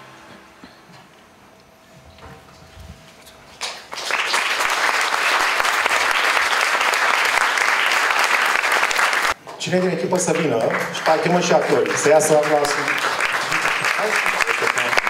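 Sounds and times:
audience applauding: 3.6s - 15.0s.

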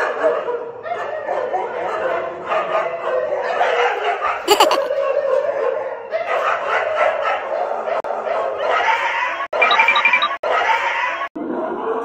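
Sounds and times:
people laughing: 4.5s - 5.0s.

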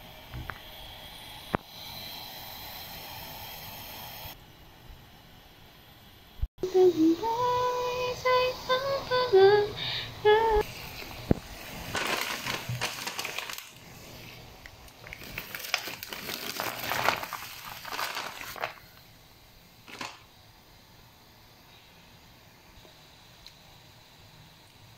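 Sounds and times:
rustling and splashing: 11.0s - 14.0s, 14.9s - 19.0s, 19.8s - 20.3s.

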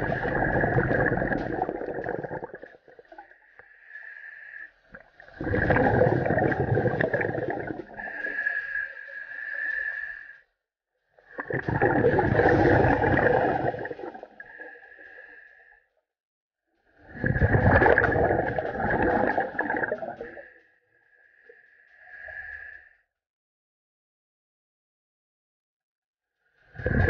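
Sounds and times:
exhaled bubbles rushing: 0.0s - 3.3s, 5.0s - 8.3s, 11.4s - 14.5s, 17.1s - 20.4s, 26.8s - 27.0s.

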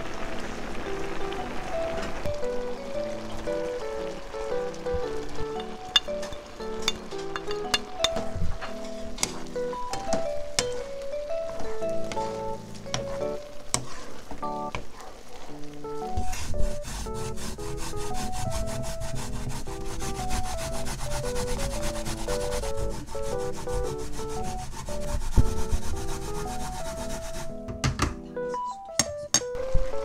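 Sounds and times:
light background music: 0.5s - 15.0s, 15.6s - 30.0s
potato rubbed on hand grater: 16.2s - 27.5s.

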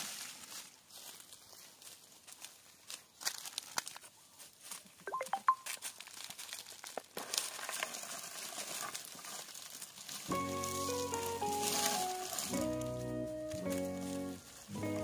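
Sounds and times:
rustling in dry leaves: 0.0s - 5.0s, 5.6s - 15.0s
short high chirps: 5.1s - 5.7s.

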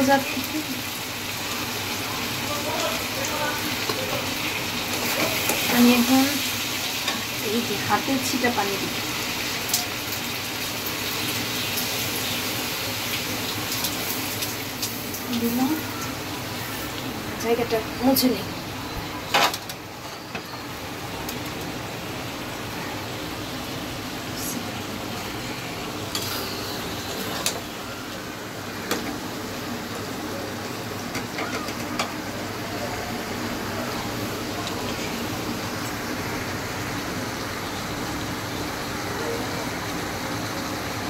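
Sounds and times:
food hissing in a hot pan: 0.0s - 17.0s
food sizzling in a pan: 0.0s - 41.0s.

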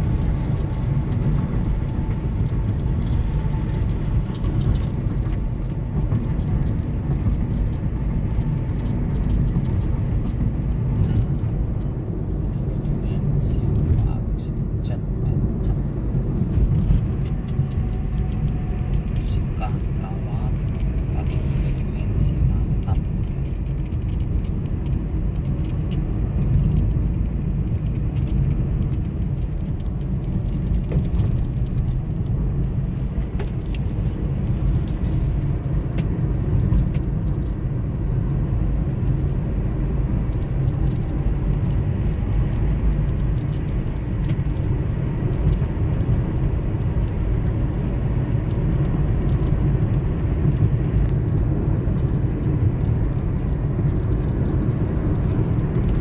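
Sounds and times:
car tyre and road noise: 0.0s - 56.0s.

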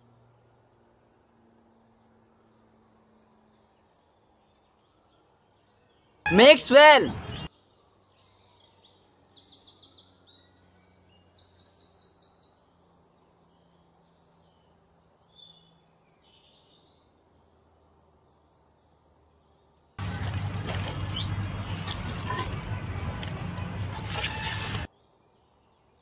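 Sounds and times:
bird chirps and trills: 20.0s - 22.8s.

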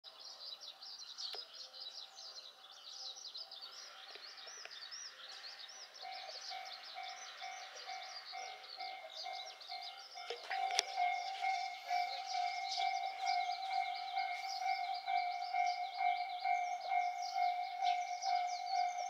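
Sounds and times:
small birds chirping: 0.1s - 19.0s.

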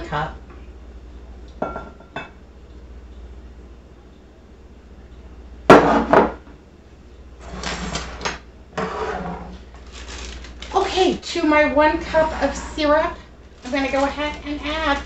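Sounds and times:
dish being set down: 1.6s - 2.4s
scraping and handling noise: 7.4s - 11.2s, 12.0s - 15.0s.

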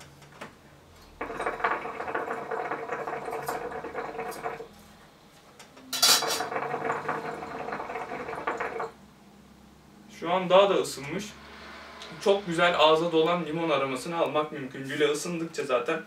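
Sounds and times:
hookah water bubbling: 1.2s - 4.7s, 6.2s - 9.0s.

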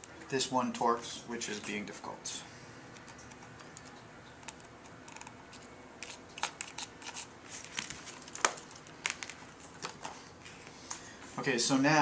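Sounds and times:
screwdriver clicks and scrapes: 3.0s - 8.5s.

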